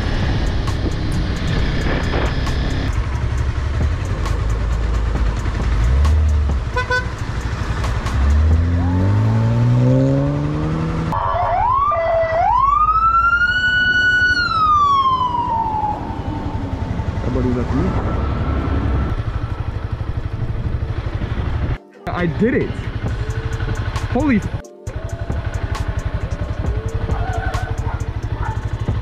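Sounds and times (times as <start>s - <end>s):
motorcycle engine revving: 0.0s - 11.2s, 15.1s - 29.0s
police siren: 11.1s - 20.3s, 24.8s - 28.4s.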